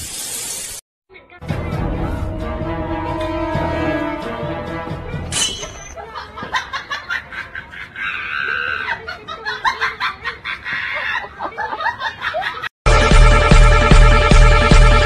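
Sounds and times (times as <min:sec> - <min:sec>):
people laughing: 0:06.0 - 0:12.7.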